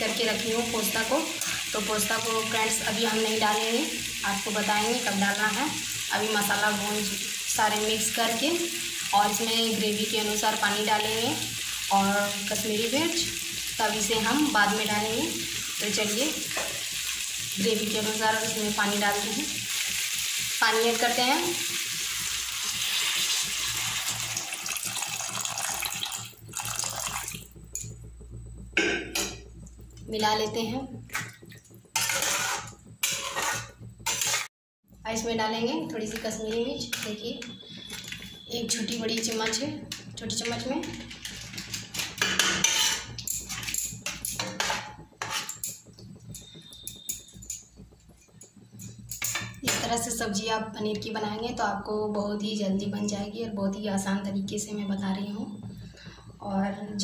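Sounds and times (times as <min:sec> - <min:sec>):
water pouring into a pan: 0:00.1 - 0:27.6
metal spatula scraping a pan: 0:32.0 - 0:34.5, 0:41.0 - 0:45.8.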